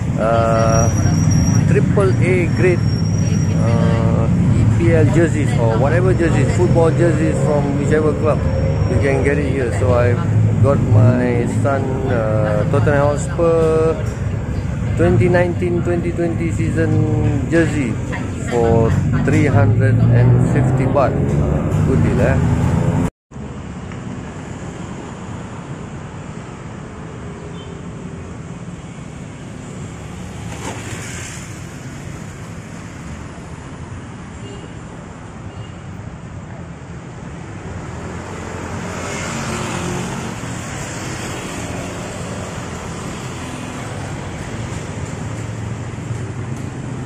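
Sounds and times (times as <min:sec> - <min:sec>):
passing cars and motorcycles: 0:00.0 - 0:47.0.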